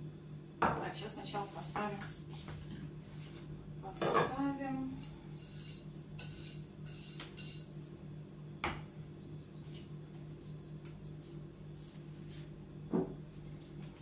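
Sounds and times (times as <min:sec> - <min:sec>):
steady low hum: 0:00.0 - 0:14.0
appliance electronic beeps: 0:09.2 - 0:11.5.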